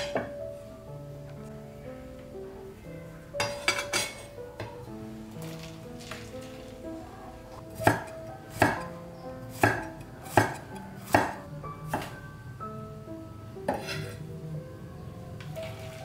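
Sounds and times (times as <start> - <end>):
soft background music: 0.0 - 16.0
knife chopping on cutting board: 7.8 - 8.8, 9.5 - 12.1.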